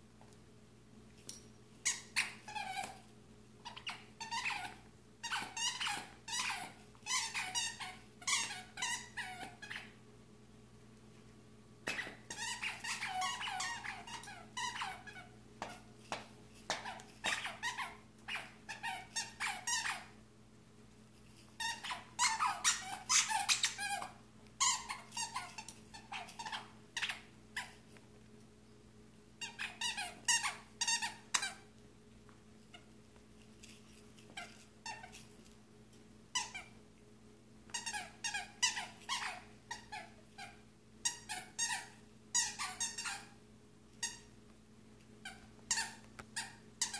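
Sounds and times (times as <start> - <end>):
dog toy squeaking: 1.8 - 3.0, 3.6 - 10.0, 11.8 - 15.9, 16.7 - 20.2, 21.6 - 27.8, 29.4 - 31.7, 34.3 - 35.3, 36.3 - 36.8, 37.7 - 43.4, 45.2 - 46.9.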